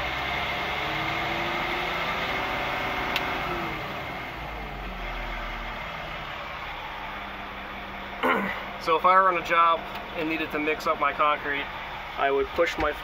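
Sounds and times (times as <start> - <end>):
diesel engine revving: 0.0 - 13.0.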